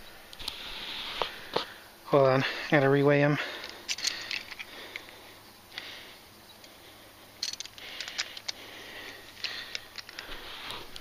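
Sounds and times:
handling clicks and rustles: 2.7 - 5.9, 6.6 - 11.0.

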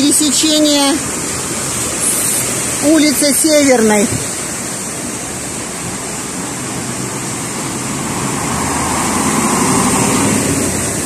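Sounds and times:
wheels splashing through water: 0.0 - 11.0.

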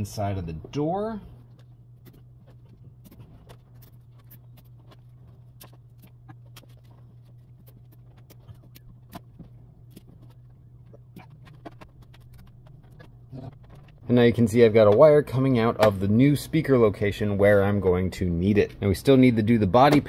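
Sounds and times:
low hum: 0.0 - 20.0.

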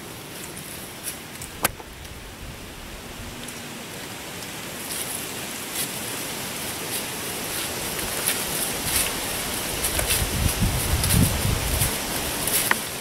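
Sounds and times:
dry leaves rustling: 0.0 - 13.0
soft crackles: 4.3 - 13.0.

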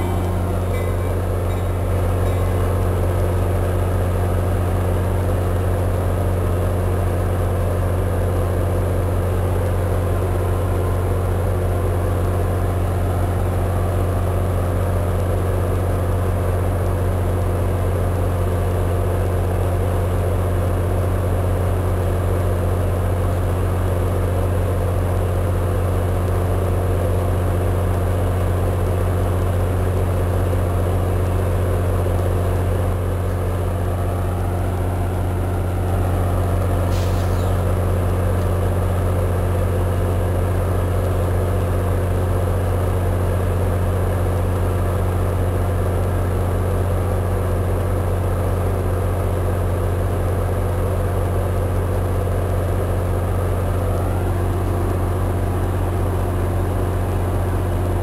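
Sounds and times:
idling train drone: 0.0 - 58.0.

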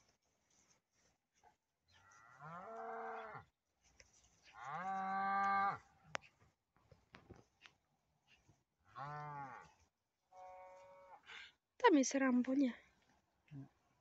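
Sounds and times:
cattle mooing: 2.1 - 3.4, 4.6 - 5.9, 8.9 - 9.7.

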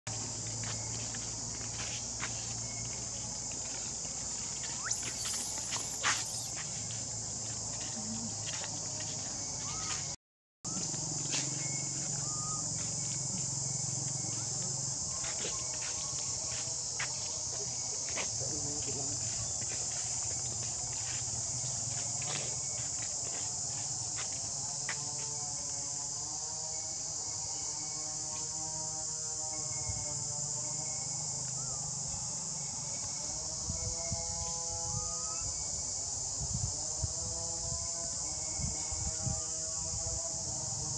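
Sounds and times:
high-pitched insect buzzing: 0.4 - 10.0, 19.0 - 40.9.

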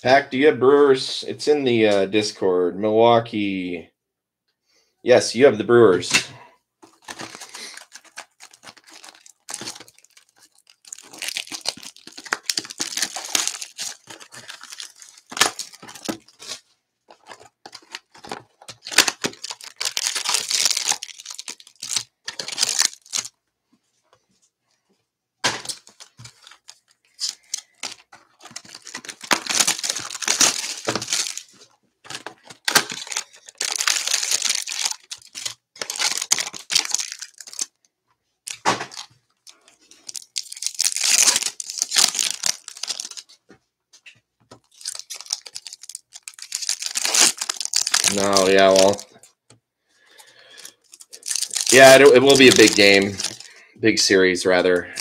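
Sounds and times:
plastic wrap tearing and crinkling: 6.8 - 23.3, 25.6 - 37.8, 38.5 - 43.4, 44.5 - 49.2, 50.3 - 53.6.

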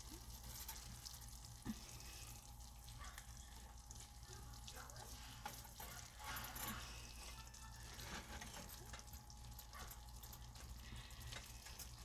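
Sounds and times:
juices bubbling: 0.0 - 12.0
low steady hum: 0.0 - 12.0
meat sizzling in a skillet: 0.0 - 12.0
spatula stirring and scraping: 5.1 - 9.1.

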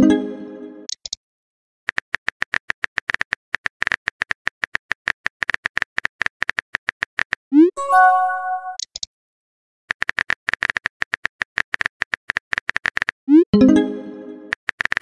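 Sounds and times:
message chime: 7.8 - 8.8, 13.6 - 14.5.

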